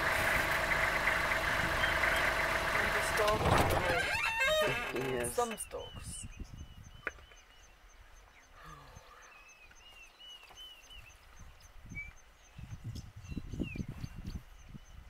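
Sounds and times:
low rumbling thumps: 0:00.0 - 0:07.1.

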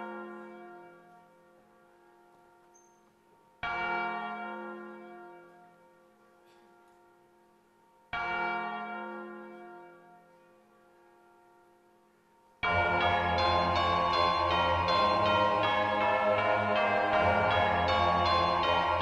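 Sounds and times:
deep church bell tolling: 0:00.0 - 0:02.6, 0:03.6 - 0:07.2, 0:08.1 - 0:10.6, 0:12.6 - 0:19.0.

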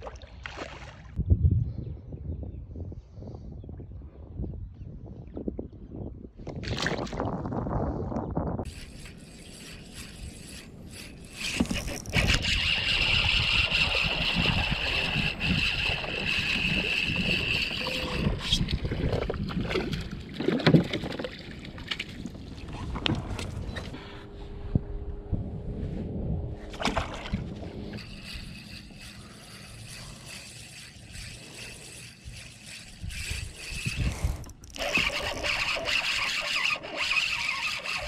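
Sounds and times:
water lapping at a kayak: 0:00.0 - 0:01.2, 0:08.6 - 0:24.1, 0:26.6 - 0:38.0
fishing reel whirring: 0:08.6 - 0:19.3, 0:27.7 - 0:38.0.

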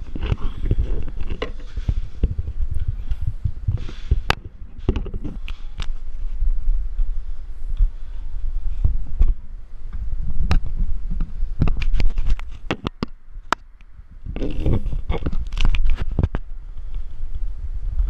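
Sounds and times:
sharp clicks and knocks: 0:00.0 - 0:06.0, 0:09.2 - 0:13.9
low rumble: 0:00.0 - 0:18.0.

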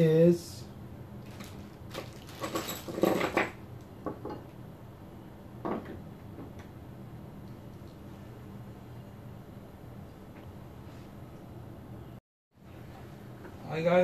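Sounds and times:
plastic bag rustling: 0:01.2 - 0:03.4.

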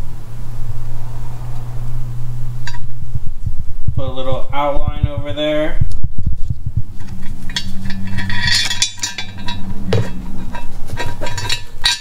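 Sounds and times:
steady low hum: 0:00.0 - 0:12.0
metallic clinks and knocks: 0:06.9 - 0:12.0.

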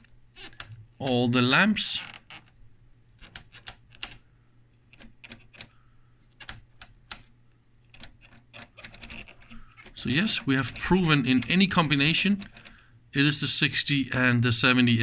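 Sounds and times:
rotary switch clicking: 0:06.4 - 0:07.3.

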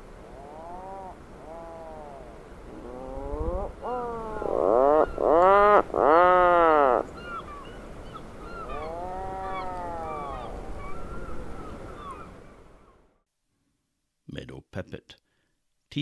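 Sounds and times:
puffin low drawn-out calls: 0:00.2 - 0:07.2, 0:08.5 - 0:11.1.

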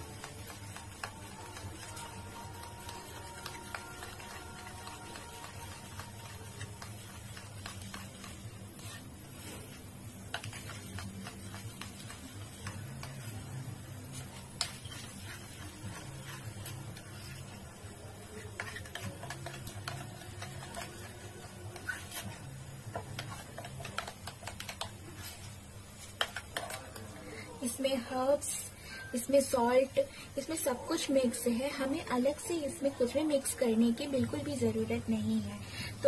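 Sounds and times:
hands patting breadcrumb patty: 0:00.0 - 0:27.1.

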